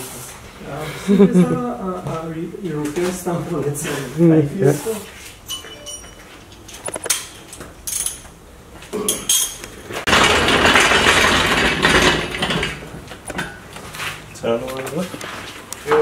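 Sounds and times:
metal clinks and knocks: 0:05.5 - 0:08.3, 0:09.1 - 0:13.6.

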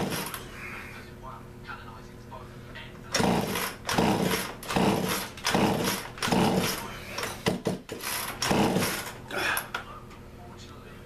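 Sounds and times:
engine turning over: 0:03.2 - 0:06.8, 0:08.0 - 0:09.2
chainsaw starter rope pulled: 0:03.2 - 0:07.4, 0:08.0 - 0:09.2.

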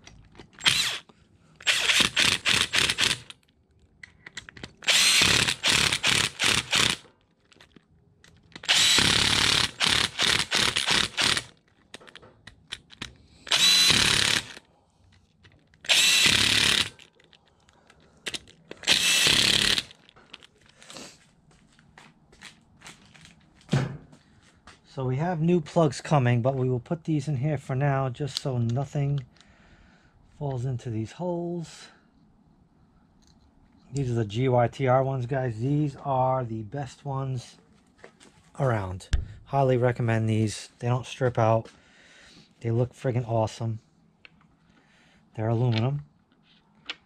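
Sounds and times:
cordless impact driver bursts: 0:00.6 - 0:03.4, 0:04.8 - 0:07.1, 0:08.6 - 0:11.5, 0:13.4 - 0:14.6, 0:15.8 - 0:17.0, 0:18.3 - 0:20.0.

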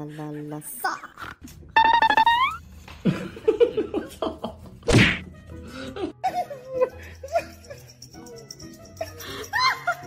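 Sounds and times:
loud whack: 0:04.9 - 0:05.2.

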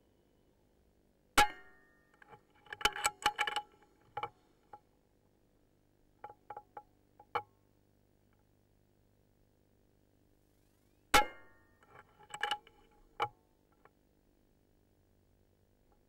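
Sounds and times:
metallic clicks and clinks: 0:02.2 - 0:04.3.

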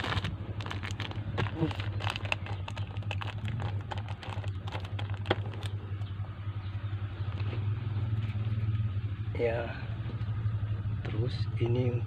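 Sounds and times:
plastic sheet crinkling: 0:00.0 - 0:05.8
steady low hum: 0:00.0 - 0:12.0.

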